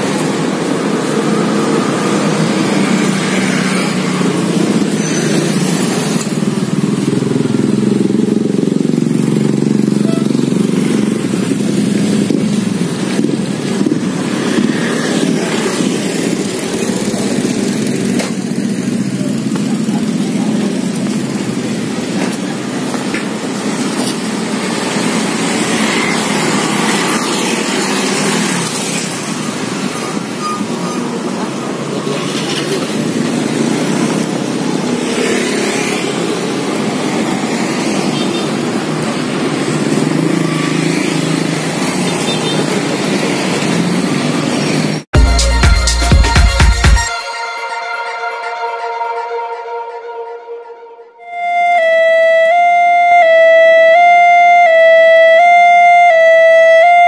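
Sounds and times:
motorcycles and scooters passing: 0.0s - 45.1s.

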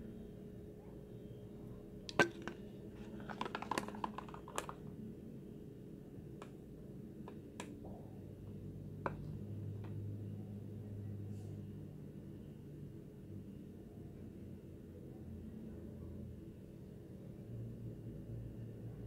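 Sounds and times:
faint steady hum: 0.0s - 19.0s
plastic tub clicking: 2.1s - 4.8s.

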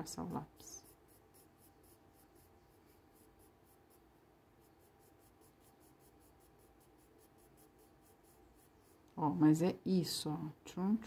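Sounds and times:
pencil scratching on paper: 0.0s - 9.4s.

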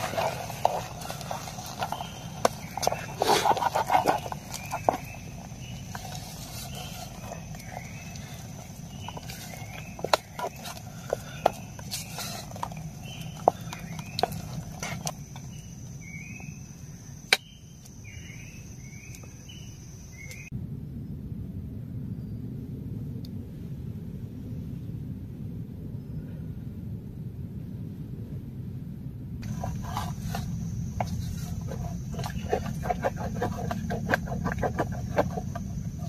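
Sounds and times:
spoon scraping rice in pot: 0.0s - 15.1s, 29.4s - 36.0s
insect chirps: 0.0s - 21.1s, 29.4s - 36.0s
insects droning: 0.0s - 21.2s, 29.4s - 36.0s.

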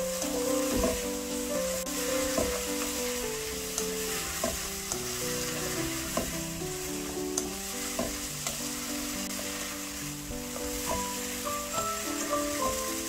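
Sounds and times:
vegetables and pork sizzling in pan: 0.0s - 13.0s.

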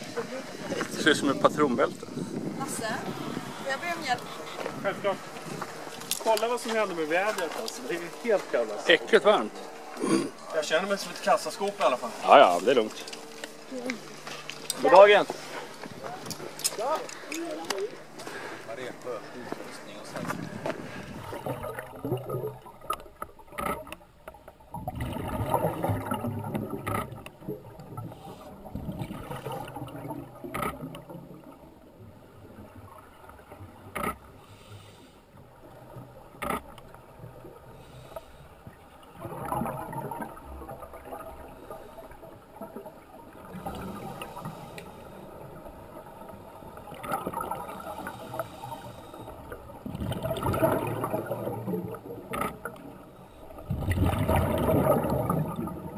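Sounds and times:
bubbles gurgling: 0.0s - 13.0s, 17.9s - 34.4s, 35.4s - 55.9s
diver breathing through regulator: 9.9s - 10.5s, 18.2s - 21.6s, 34.4s - 35.3s, 37.7s - 38.6s, 43.7s - 45.3s, 47.8s - 49.6s.

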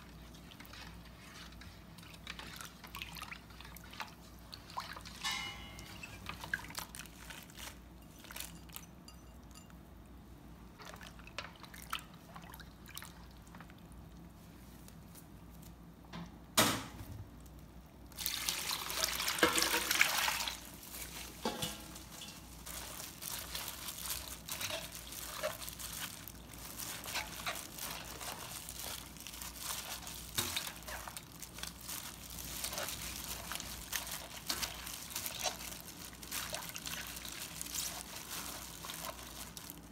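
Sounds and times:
splashing and squelching: 0.0s - 8.5s, 18.2s - 39.9s
faint sloshing: 0.0s - 8.8s, 10.7s - 14.8s, 18.1s - 39.9s
liquid stirred in a steel bowl: 0.0s - 9.7s, 18.2s - 39.9s
sharp metal clank: 5.2s - 6.0s.

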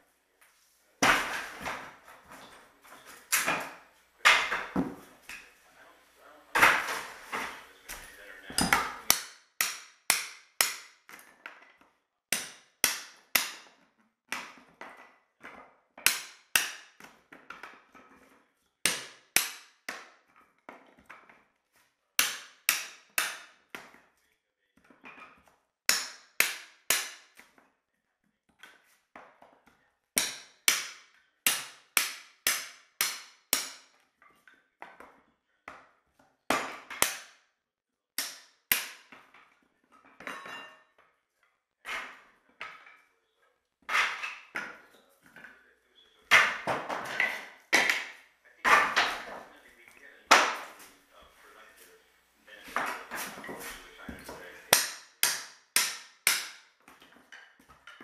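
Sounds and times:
hammer striking wooden floor: 3.3s - 5.4s, 6.6s - 11.7s, 12.3s - 18.1s, 18.8s - 21.3s, 22.2s - 24.0s, 25.1s - 27.6s, 30.2s - 34.0s, 36.5s - 37.4s, 38.2s - 39.5s, 43.9s - 44.8s, 46.3s - 49.4s, 50.3s - 50.8s, 54.1s - 57.2s.

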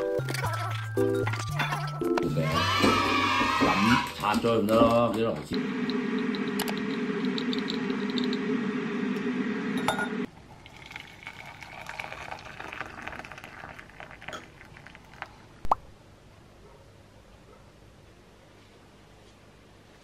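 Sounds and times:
loud steady hum: 5.5s - 10.3s
water pouring into mug: 10.3s - 15.6s.

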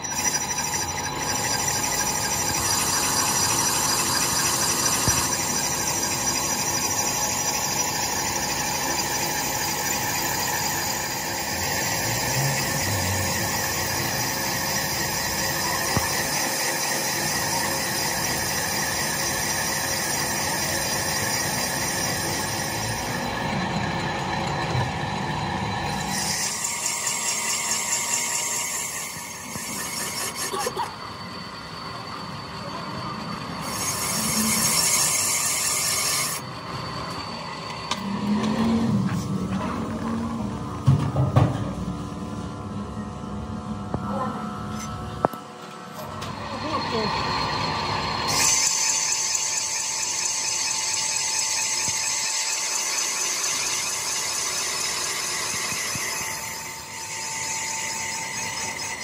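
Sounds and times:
high steady machine tones: 0.0s - 59.0s
metalworking machine running: 0.0s - 59.0s.

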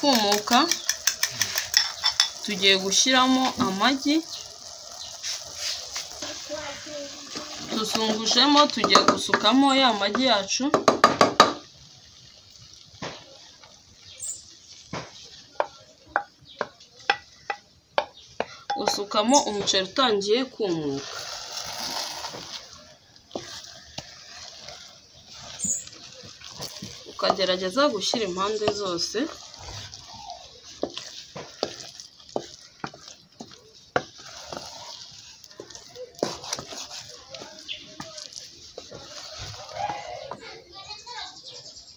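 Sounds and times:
utensils tapping metal pot: 0.0s - 4.4s, 7.2s - 11.7s, 14.2s - 19.9s, 22.3s - 40.4s
wooden spoon scraping saucepan: 0.0s - 10.6s, 11.2s - 41.4s
faint sizzle of egg cooking: 0.0s - 19.3s, 20.1s - 41.8s.

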